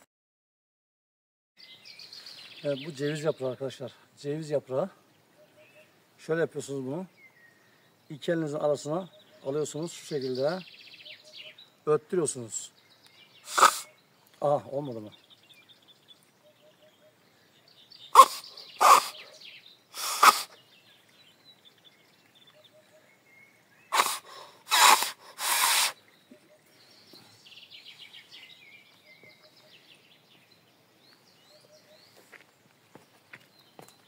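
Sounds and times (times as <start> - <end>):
birds chirping faintly: 1.6 - 34.0
leaf whistle blasts: 23.9 - 26.0.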